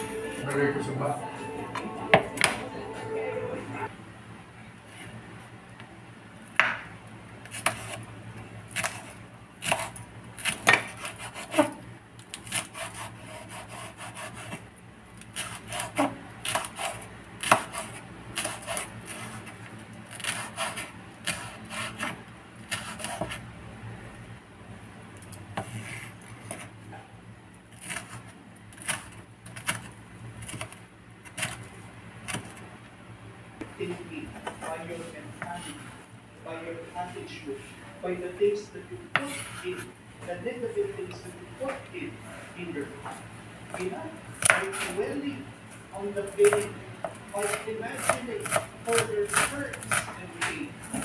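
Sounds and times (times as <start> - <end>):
knife chopping on wooden board: 8.7 - 11.8, 15.4 - 19.4, 20.1 - 23.4, 44.4 - 45.0.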